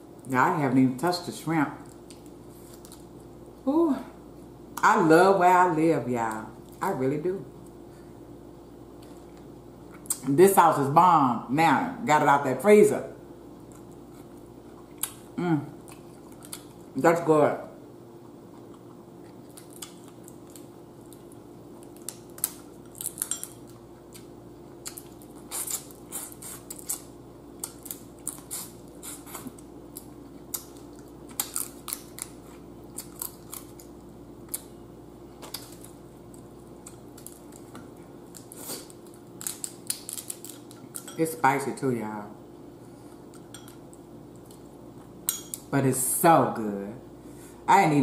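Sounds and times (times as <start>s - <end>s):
steady low hum: 0.0s - 48.0s
crab shells cracking: 30.0s - 34.7s, 36.8s - 41.1s.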